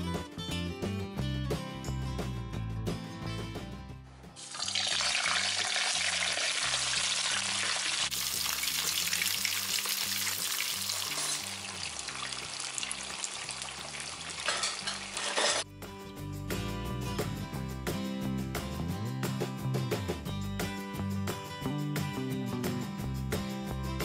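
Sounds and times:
faint background music: 0.0 - 24.0
fish sizzling in hot oil: 4.4 - 15.6.

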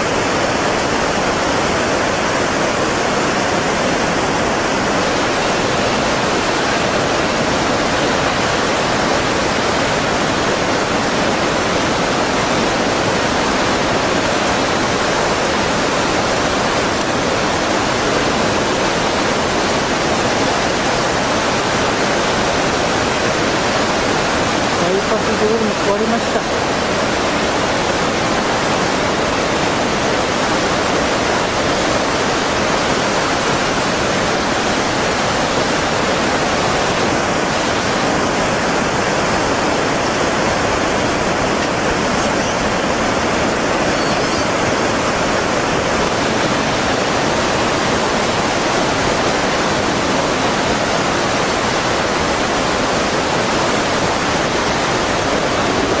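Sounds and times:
floodwater rushing: 0.0 - 56.0
faint high whine: 37.0 - 45.2.

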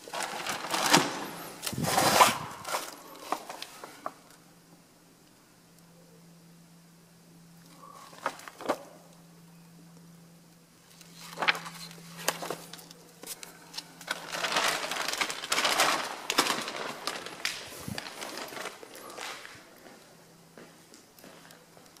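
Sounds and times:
paper rustling and scraping: 0.0 - 4.2, 7.8 - 8.8, 10.9 - 19.7
steady low hum: 0.0 - 22.0.

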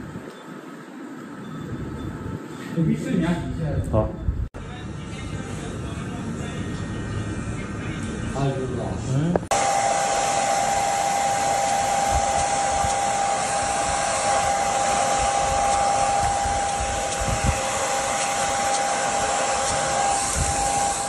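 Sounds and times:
hair dryer running: 9.5 - 21.0.

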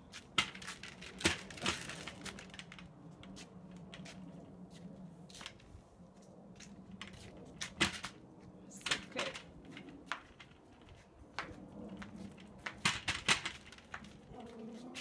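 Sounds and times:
hand truck rolling over concrete: 0.4 - 2.9, 8.8 - 15.0.

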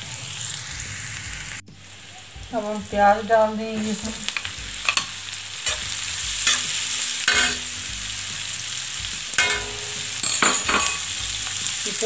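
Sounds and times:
onions sizzling in oil: 0.0 - 12.0
metal spatula scraping griddle: 4.3 - 7.8, 9.3 - 11.6.

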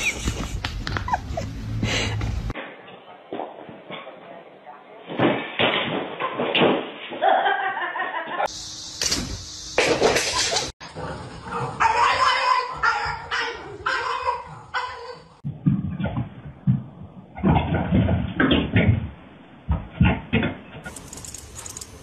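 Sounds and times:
people laughing: 0.0 - 2.2, 7.2 - 8.5, 10.2 - 10.7.

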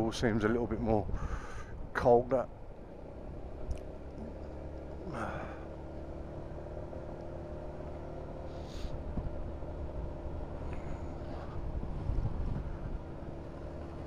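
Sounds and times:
wind rumble: 0.0 - 4.3, 8.4 - 14.0
scooter engine running: 2.5 - 14.0.

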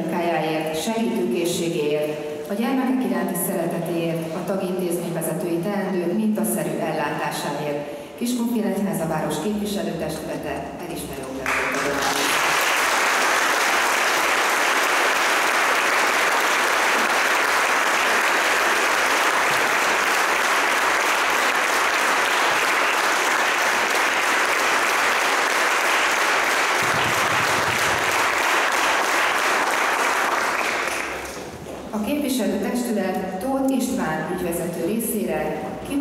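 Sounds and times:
audience applauding: 11.4 - 31.5.

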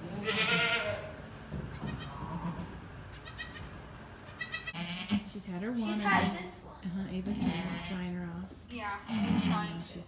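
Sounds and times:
goats bleating: 0.0 - 5.3.

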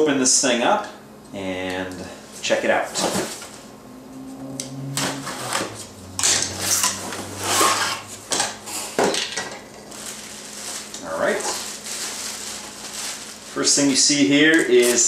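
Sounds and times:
cardboard flaps tearing and rustling: 9.8 - 13.7.

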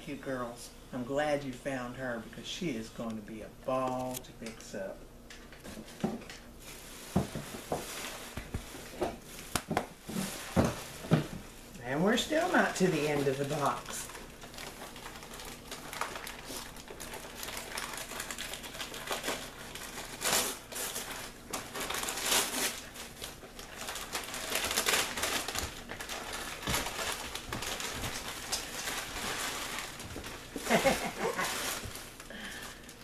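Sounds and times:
wrapping paper tearing and crumpling: 11.9 - 33.0.

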